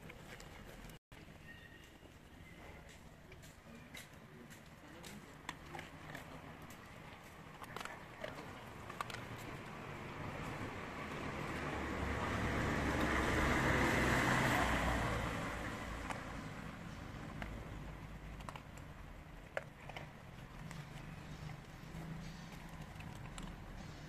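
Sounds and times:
puppy crunching dry kibble: 0:02.8 - 0:14.6, 0:15.6 - 0:24.0
car passing: 0:08.6 - 0:18.3.

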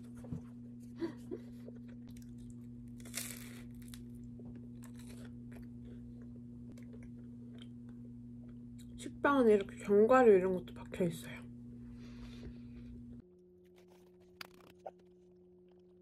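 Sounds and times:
steady low hum: 0:00.0 - 0:16.0
faint chewing: 0:01.5 - 0:09.0
toast crunch: 0:01.6 - 0:08.9.

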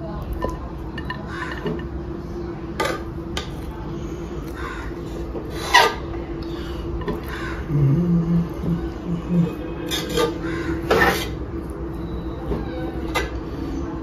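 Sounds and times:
steady low hum: 0:00.0 - 0:14.0
spoon scraping rice in a pot: 0:09.4 - 0:12.0.

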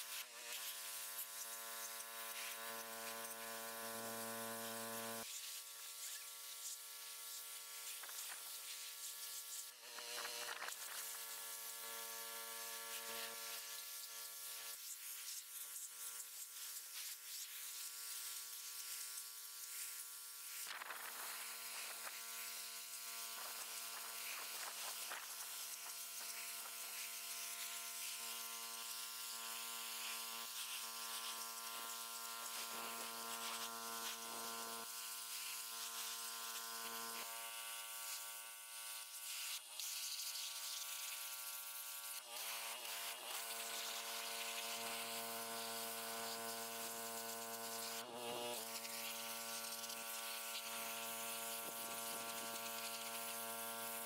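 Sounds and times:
water jet hissing on concrete: 0:00.0 - 0:54.0.

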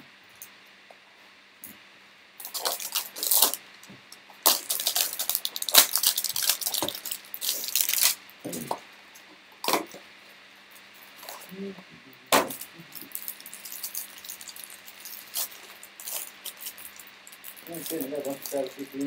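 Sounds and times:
plastic shrink wrap crinkling: 0:02.4 - 0:08.2, 0:11.0 - 0:11.5, 0:12.4 - 0:19.0.

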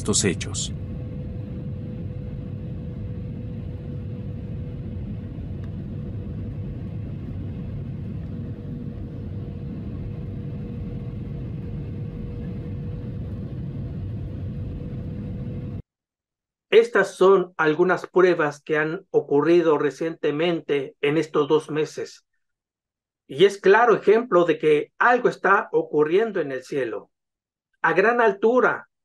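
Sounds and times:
airliner cabin roar: 0:00.0 - 0:15.8.

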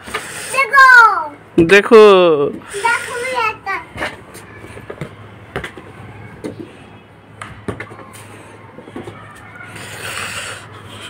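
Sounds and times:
football kicked on concrete: 0:04.8 - 0:06.7, 0:07.4 - 0:08.0.

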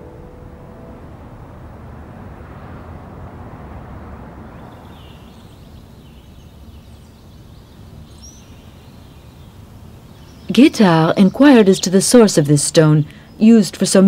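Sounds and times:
low even rumble: 0:00.0 - 0:13.4
faint bird chirps: 0:04.4 - 0:13.9.

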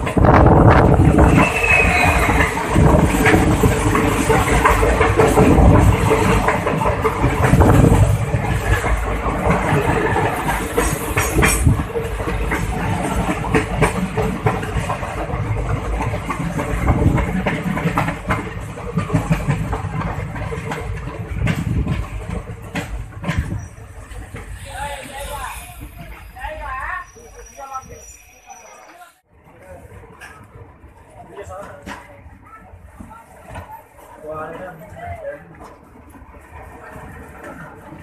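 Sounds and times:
train wheels clicking over rail joints: 0:00.0 - 0:26.3.

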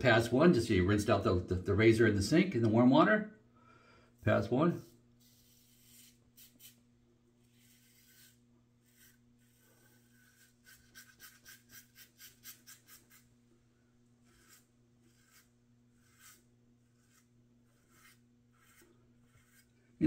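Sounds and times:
razor scraping stubble: 0:05.2 - 0:06.8, 0:07.4 - 0:13.3, 0:14.2 - 0:19.8.

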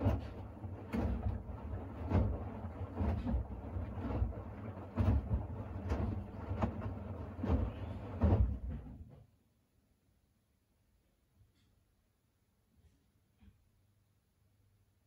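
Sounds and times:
laundry tumbling in washing machine: 0:00.0 - 0:09.3.

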